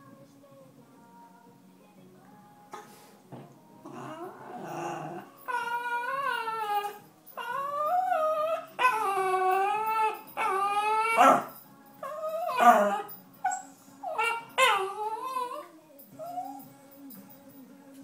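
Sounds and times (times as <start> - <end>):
dog whining and crying: 3.9 - 16.8.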